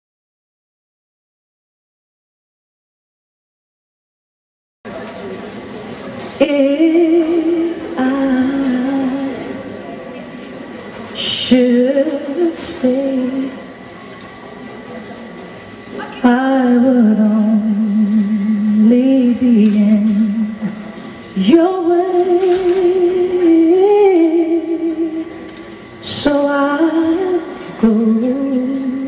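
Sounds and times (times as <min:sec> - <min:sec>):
woman singing slow song: 0:06.4 - 0:09.7, 0:11.2 - 0:13.8, 0:16.1 - 0:29.0.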